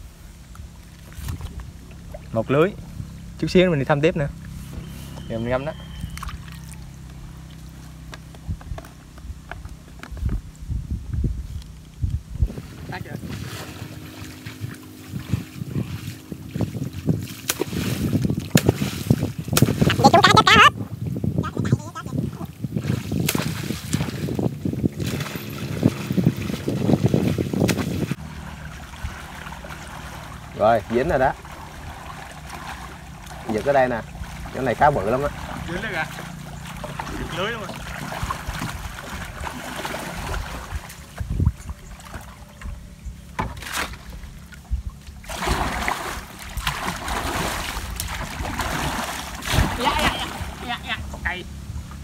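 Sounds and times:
wind buffeting microphone: 0:00.0 - 0:52.0
pole beating water surface: 0:12.4 - 0:20.7, 0:22.3 - 0:42.7, 0:43.3 - 0:51.2.

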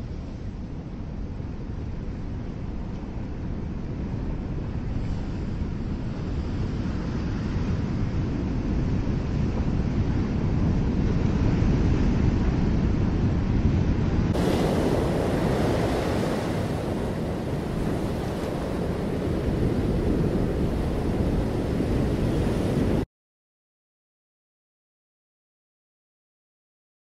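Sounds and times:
wind noise on microphone: 0:00.0 - 0:23.1
ocean surf breaking: 0:09.2 - 0:23.1.

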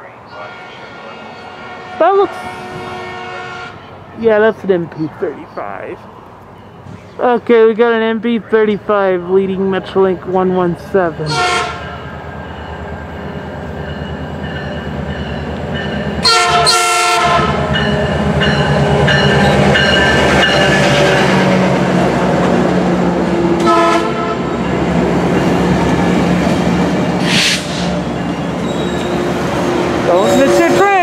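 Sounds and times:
diesel locomotive engine drone: 0:00.0 - 0:31.0
train horn: 0:00.3 - 0:04.0, 0:11.3 - 0:12.1, 0:16.2 - 0:17.9, 0:23.6 - 0:24.7, 0:30.1 - 0:31.0.

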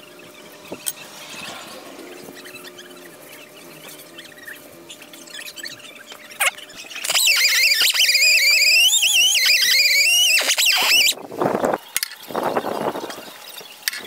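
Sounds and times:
power tool whining: 0:00.6 - 0:11.2.

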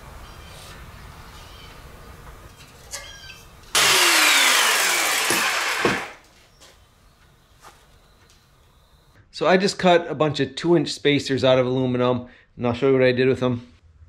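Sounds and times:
power saw cutting metal: 0:03.8 - 0:06.2.

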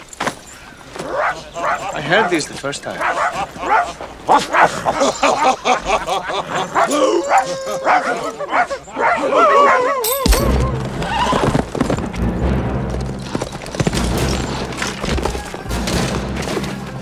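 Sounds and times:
horse whinnying: 0:06.0 - 0:11.9
hooves galloping: 0:10.0 - 0:17.0
orchestral film score: 0:10.1 - 0:17.0.

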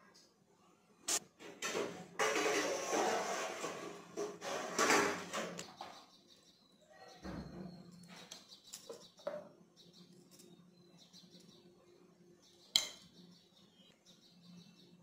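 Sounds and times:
metal spoon scraping in steel bowl: 0:02.2 - 0:05.4
birds chirping faintly: 0:05.4 - 0:15.0.

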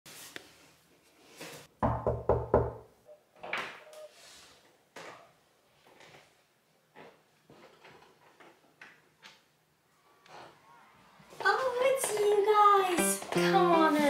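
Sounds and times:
knocks on a door: 0:01.8 - 0:02.8.

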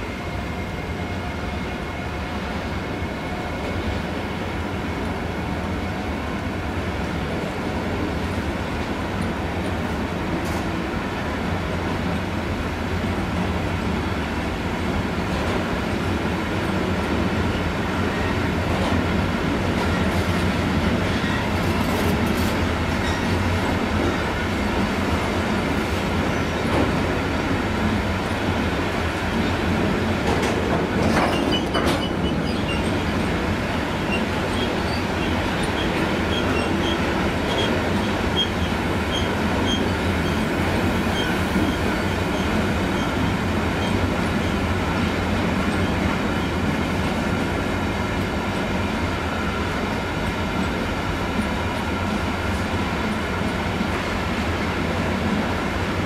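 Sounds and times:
freight train wheels rumbling: 0:00.0 - 0:56.0
train clatter: 0:15.2 - 0:49.0.

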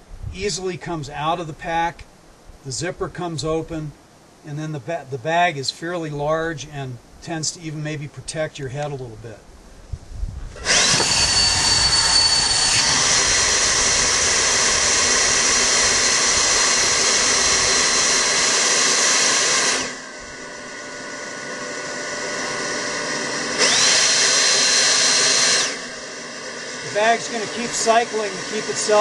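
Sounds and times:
airbag fan whining: 0:08.8 - 0:29.0.

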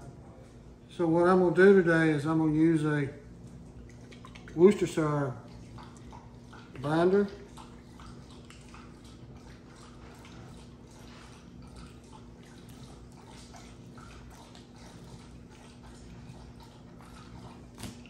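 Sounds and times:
steady low hum: 0:00.0 - 0:18.0
wet dripping and smearing: 0:00.0 - 0:18.0.

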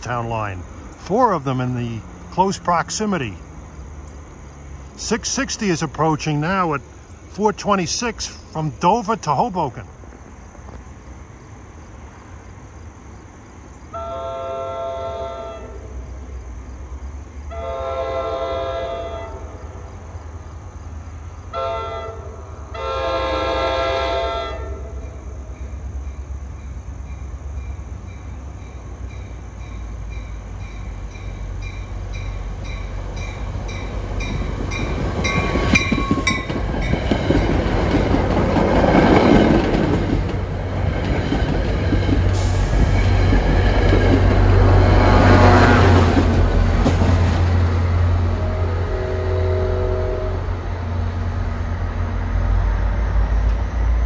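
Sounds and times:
train passing with rumble: 0:00.0 - 0:54.0
train horn blasts: 0:13.9 - 0:16.0, 0:17.5 - 0:19.6, 0:21.5 - 0:25.2, 0:48.1 - 0:50.8
wheels clicking over rail joints: 0:25.0 - 0:44.6.

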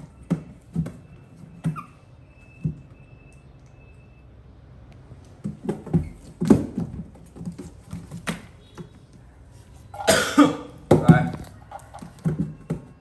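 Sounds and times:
taps and thumps on a box: 0:05.4 - 0:09.0, 0:10.8 - 0:13.0.

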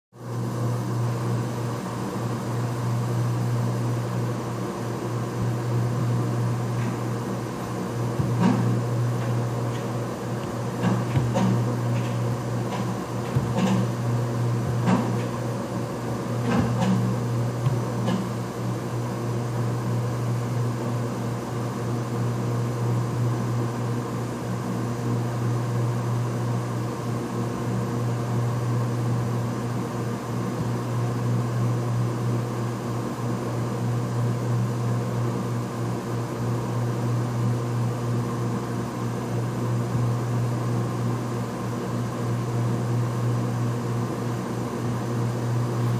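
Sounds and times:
cnc router humming: 0:00.3 - 0:20.8
short clicks and knocks: 0:08.2 - 0:14.0.

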